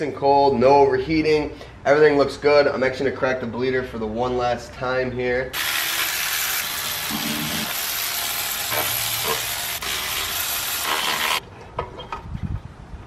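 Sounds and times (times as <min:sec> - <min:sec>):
steam and air hissing: 0:05.6 - 0:11.4.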